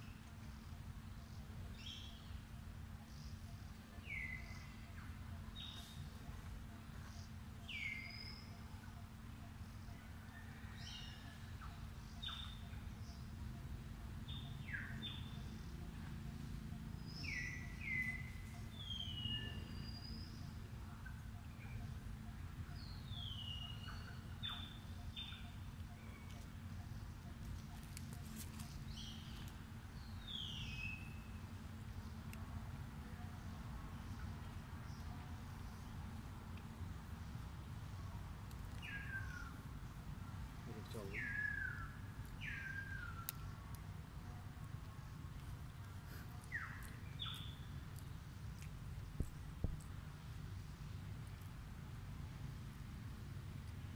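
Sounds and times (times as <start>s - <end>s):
birds chirping: 0.0s - 51.6s
faint steady hum: 0.0s - 53.9s
low background rumble: 0.0s - 53.9s.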